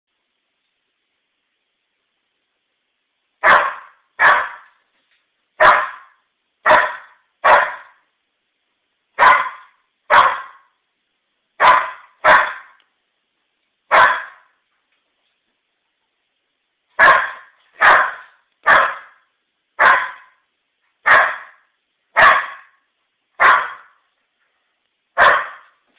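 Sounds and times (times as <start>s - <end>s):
puppy barking: 3.4s - 4.8s, 5.6s - 8.0s, 9.2s - 10.7s, 11.6s - 12.8s, 13.9s - 14.5s, 17.0s - 20.4s, 21.0s - 22.8s, 23.4s - 24.0s, 25.2s - 25.8s.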